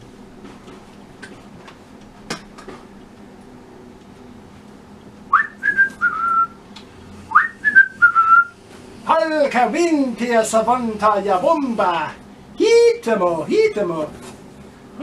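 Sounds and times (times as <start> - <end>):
person whistling: 5.3 - 6.6, 7.3 - 8.6.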